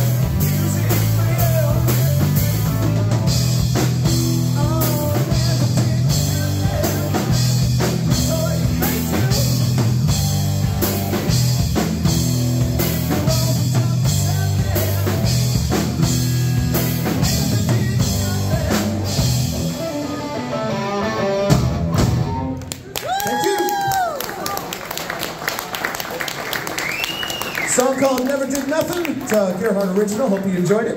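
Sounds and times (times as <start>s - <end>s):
drum kit with cymbals: 0.0s - 20.1s
electric bass: 0.0s - 22.6s
electric guitar: 0.0s - 22.9s.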